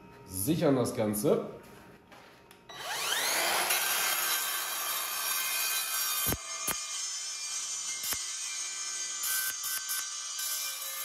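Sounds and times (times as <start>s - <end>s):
mitre saw whining and cutting: 2.7s - 11.0s.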